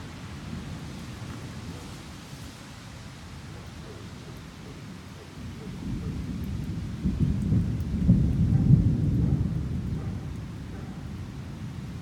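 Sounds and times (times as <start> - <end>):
rolling thunder: 7.0 - 10.0.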